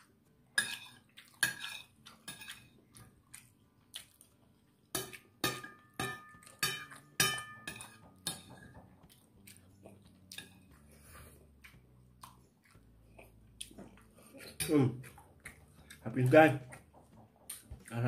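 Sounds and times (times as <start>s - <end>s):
metal spoon clinking on a plate: 0.6s - 2.7s, 5.0s - 8.8s.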